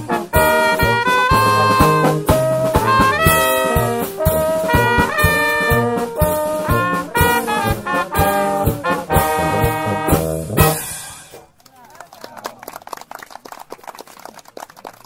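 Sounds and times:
brass band playing: 0.0s - 11.5s
drums keeping a steady beat: 0.0s - 11.6s.

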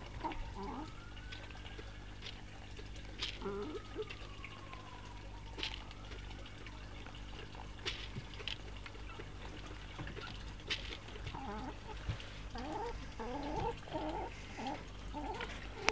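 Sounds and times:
hens clucking: 0.0s - 1.5s, 3.2s - 4.2s, 7.9s - 15.9s.

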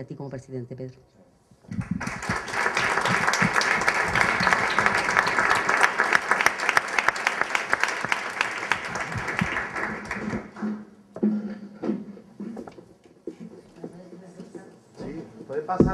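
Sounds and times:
audience applauding: 1.7s - 10.8s.

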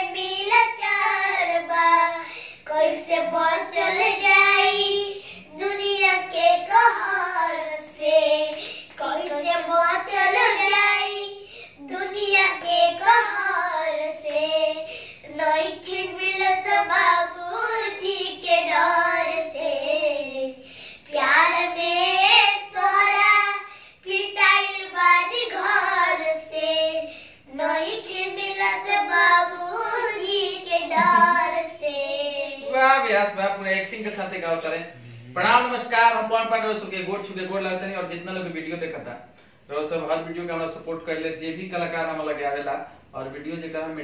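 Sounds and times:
boys singing unaccompanied: 0.0s - 32.8s.

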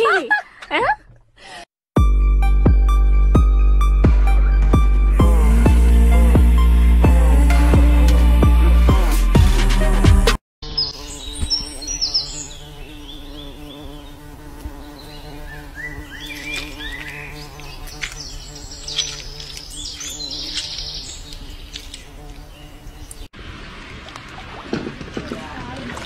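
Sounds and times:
honeybees buzzing: 10.6s - 23.3s
birds chirping: 10.6s - 24.1s.

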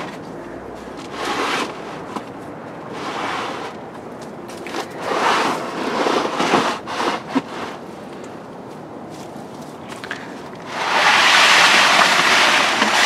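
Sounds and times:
plastic rustling and scraping: 1.0s - 7.9s, 10.6s - 13.0s.

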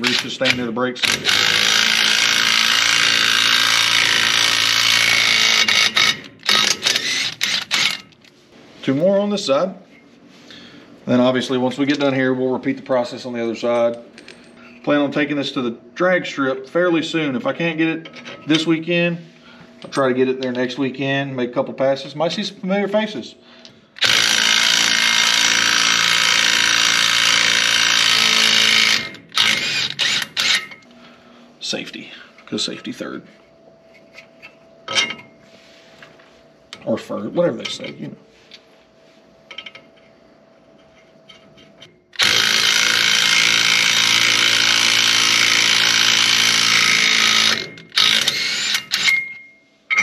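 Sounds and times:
impact wrench hammering: 0.0s - 8.0s, 24.0s - 30.8s, 42.2s - 50.0s.

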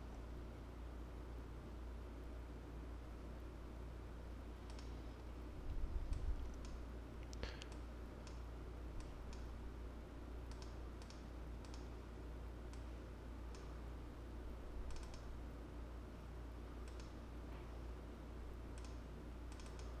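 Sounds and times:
steady low hum: 0.0s - 20.0s
computer mouse clicking: 4.6s - 5.0s, 6.1s - 8.4s, 9.0s - 9.5s, 10.5s - 11.9s, 14.8s - 15.3s, 16.8s - 17.2s, 18.7s - 20.0s.

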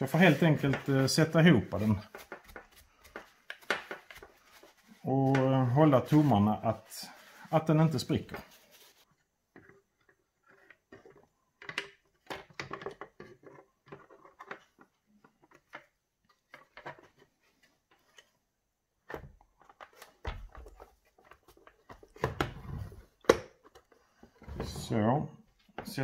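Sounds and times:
plastic parts clicking and tapping: 9.5s - 17.3s.

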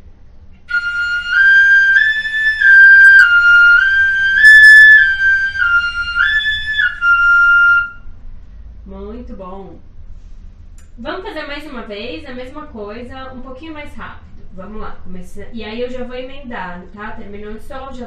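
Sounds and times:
fife playing: 0.6s - 8.0s.

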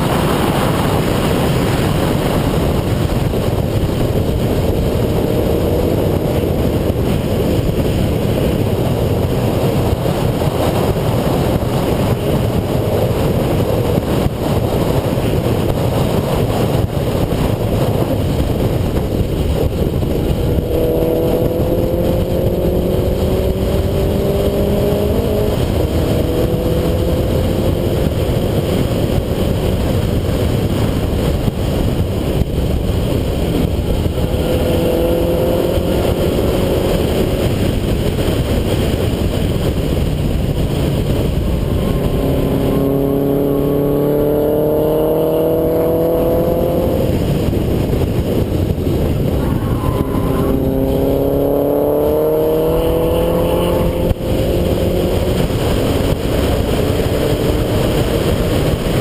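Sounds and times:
car engine running hard: 0.0s - 59.0s
road noise: 0.0s - 59.0s
wind noise: 0.0s - 59.0s.

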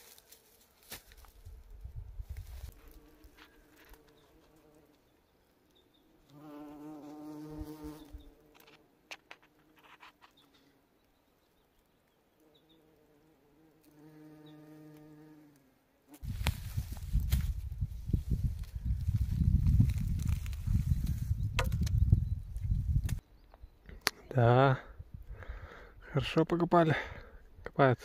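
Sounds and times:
bee buzzing: 2.7s - 5.0s, 6.3s - 8.8s, 12.4s - 16.4s.

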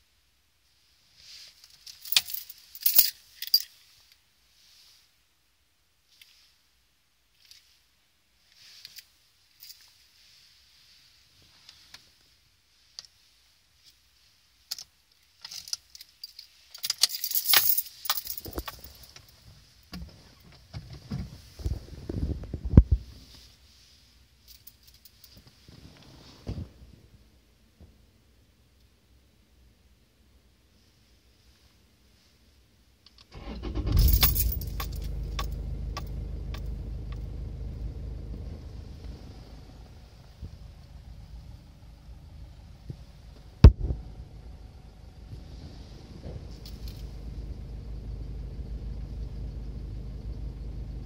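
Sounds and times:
car keys jangling: 1.8s - 3.7s, 14.7s - 19.4s, 33.4s - 37.3s, 46.5s - 47.2s
diesel engine cranking: 33.3s - 43.5s
diesel engine idling: 33.4s - 51.0s.

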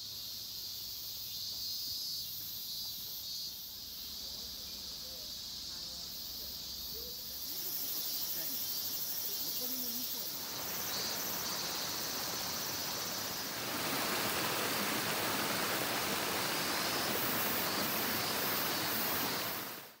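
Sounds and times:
insects chirring: 0.0s - 20.0s
stream rushing over rocks: 10.2s - 20.0s.

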